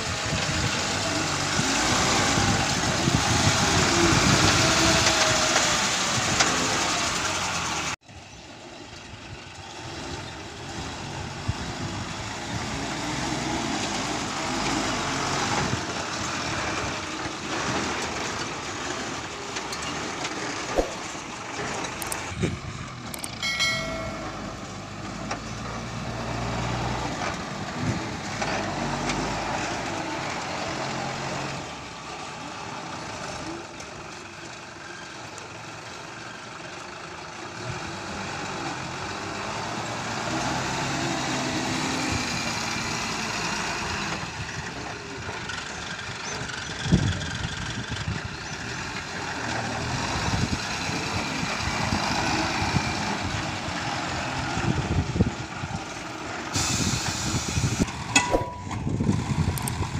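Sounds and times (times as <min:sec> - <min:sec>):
lorry diesel engine running: 0:00.0 - 0:59.9
short pitched tone: 0:23.2 - 0:24.8, 0:58.2 - 0:58.9.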